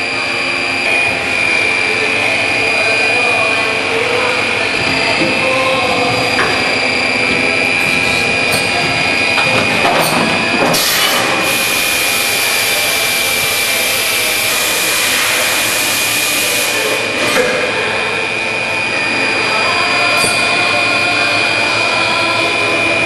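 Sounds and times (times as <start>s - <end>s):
machine high whine: 0.0s - 23.0s
loud hiss: 10.7s - 17.3s.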